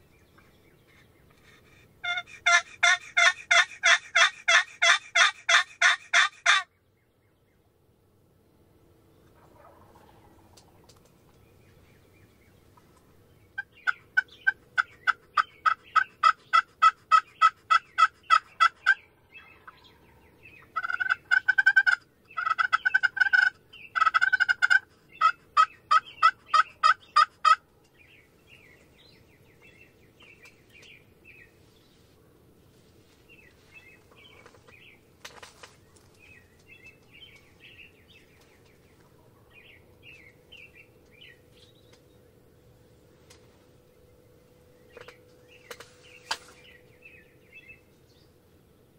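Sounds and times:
turkey gobbling: 1.5 - 6.7, 9.4 - 10.6, 13.6 - 19.0, 20.6 - 27.6
turkey yelping: 2.0 - 6.7, 9.4 - 10.4, 13.6 - 19.0, 20.7 - 27.6
faint songbird chirps: 27.8 - 32.4, 33.0 - 48.9.

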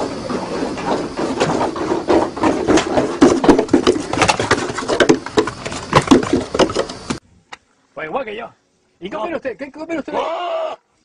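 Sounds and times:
goat hooves clattering on wood: 0.0 - 7.2.

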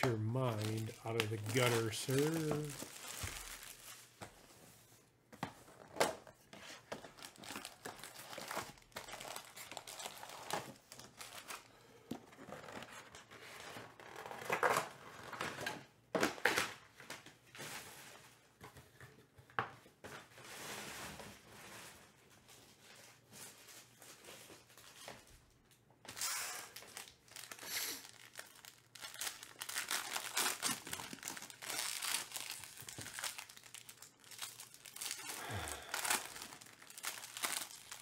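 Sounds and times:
plastic wrap crinkling and tearing: 0.0 - 4.4, 6.8 - 11.8, 26.1 - 38.0.

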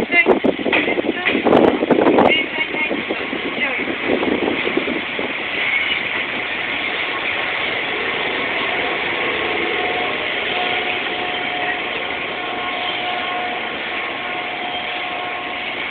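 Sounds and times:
train hum and hiss: 0.0 - 15.9
faint high whining tones: 7.1 - 15.9.

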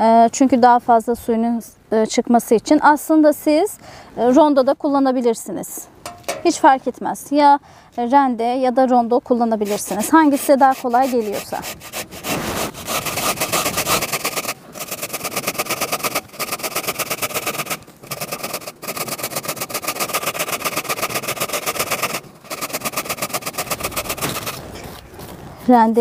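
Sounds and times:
beet grated on metal grater: 9.5 - 24.7.

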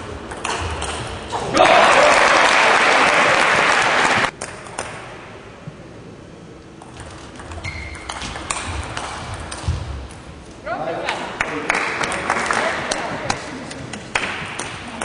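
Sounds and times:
audience applauding: 1.5 - 4.4, 11.4 - 13.1.

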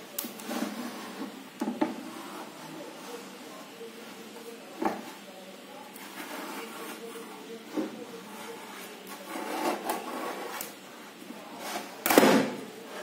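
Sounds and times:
plastic box scraping on desk: 9.2 - 10.6.

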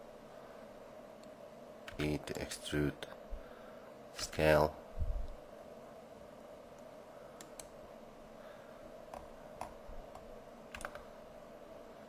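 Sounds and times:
low background hum: 0.0 - 12.0
keyboard and mouse clicks: 7.4 - 7.8, 9.1 - 11.1.

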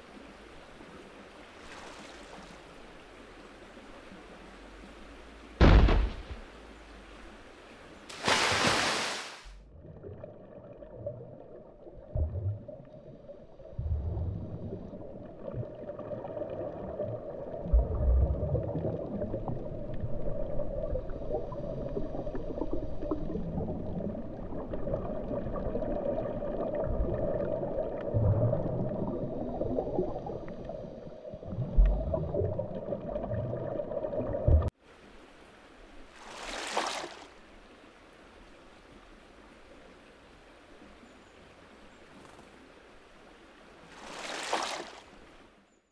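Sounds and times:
short water splash: 5.6 - 6.4, 8.1 - 9.6, 36.2 - 37.3, 43.9 - 45.1
deep underwater thuds: 5.6 - 6.5.

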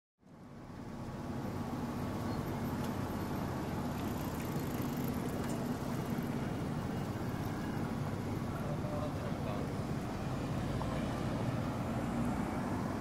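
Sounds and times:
faint steady drone: 0.2 - 13.0
road traffic hum: 0.2 - 13.0.

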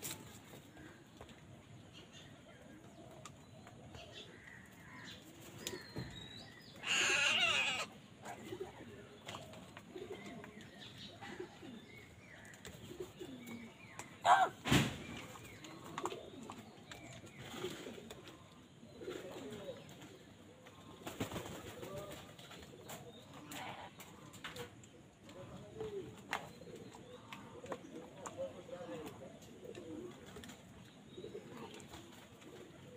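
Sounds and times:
crows calling: 6.7 - 8.0.

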